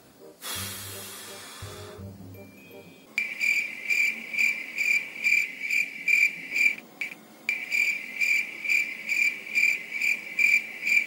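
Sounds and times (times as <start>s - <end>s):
cricket chirping: 3.2s - 11.0s.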